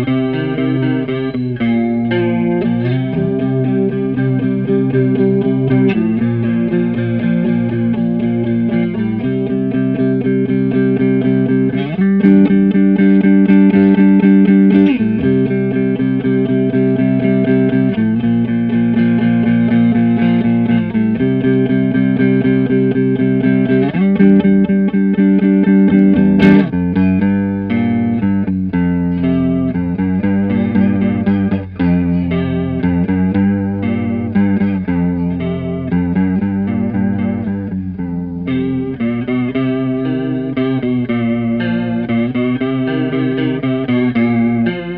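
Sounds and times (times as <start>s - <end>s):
electric guitar chord riff: 0.0s - 44.9s.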